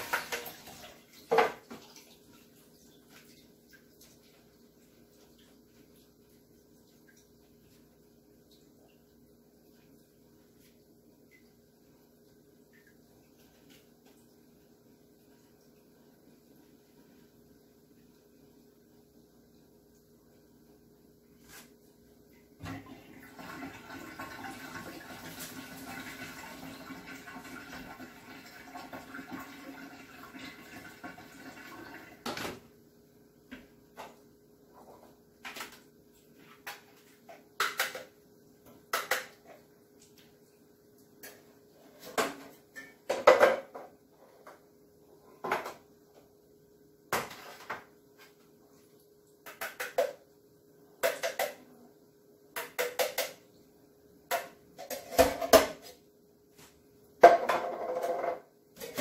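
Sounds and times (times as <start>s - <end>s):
kitchenware clinking and clattering: 0.0s - 2.0s, 36.6s - 39.7s, 41.2s - 44.6s, 51.0s - 51.7s, 52.6s - 53.5s, 54.3s - 56.0s, 57.2s - 59.0s.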